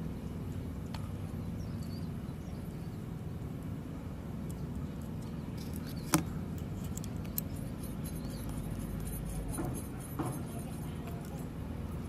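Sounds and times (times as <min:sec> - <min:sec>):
sharp clicks of metal parts: 0:04.4 - 0:11.5.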